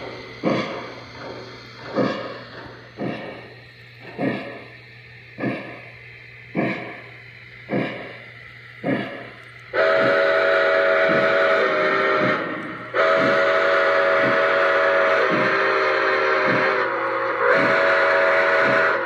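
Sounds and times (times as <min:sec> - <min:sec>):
model locomotive steam chuffs: 0:00.0 - 0:19.0
steam whistle blowing: 0:09.7 - 0:19.0.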